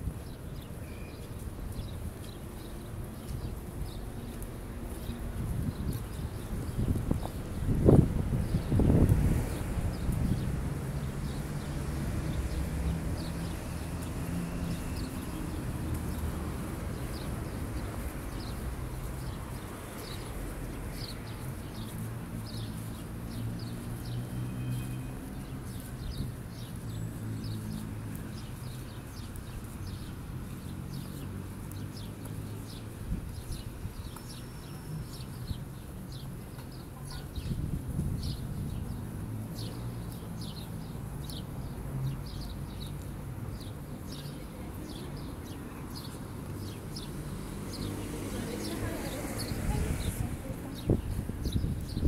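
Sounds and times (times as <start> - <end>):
small birds chirping: 0.1 - 52.0
vehicle engines humming: 8.8 - 33.0.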